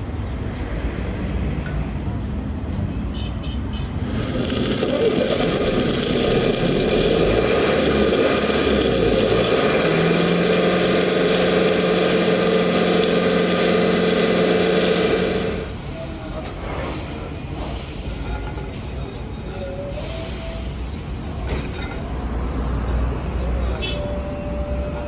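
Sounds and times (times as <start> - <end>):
welding arc crackling and sizzling: 3.8 - 16.7.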